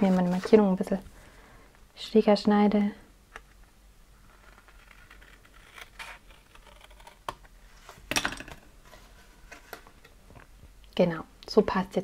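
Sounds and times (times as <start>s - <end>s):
paper rustling: 0.0s - 0.8s.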